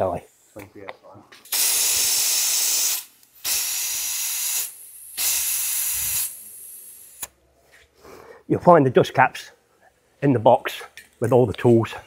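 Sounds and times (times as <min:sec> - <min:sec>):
tyre inflator hissing: 0:01.5 - 0:07.3.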